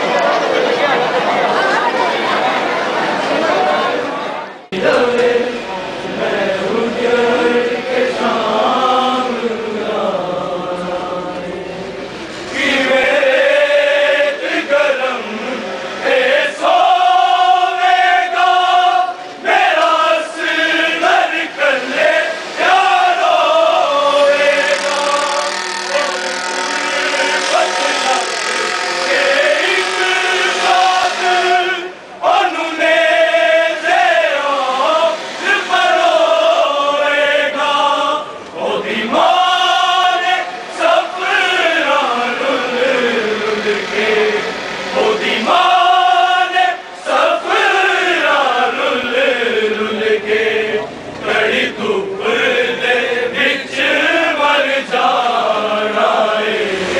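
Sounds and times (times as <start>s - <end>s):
men chanting a lament: 12.5s - 56.9s.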